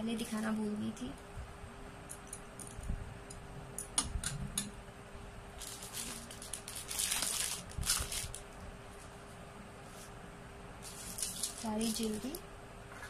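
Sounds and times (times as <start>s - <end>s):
wrapping rustling and crinkling: 5.6s - 10.2s, 10.8s - 12.4s.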